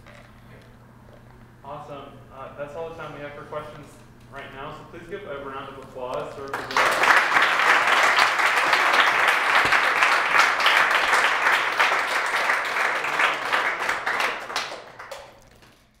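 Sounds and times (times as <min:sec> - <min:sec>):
audience applause: 0:06.5 - 0:15.7.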